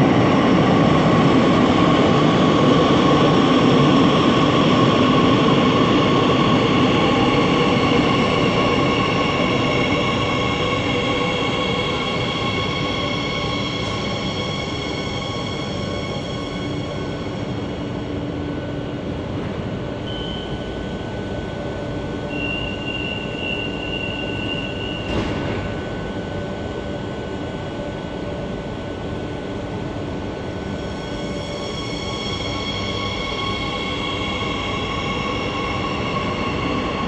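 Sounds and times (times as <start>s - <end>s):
metro train slowing and stopping: 0.0s - 37.0s
steady whining tones: 0.0s - 37.0s.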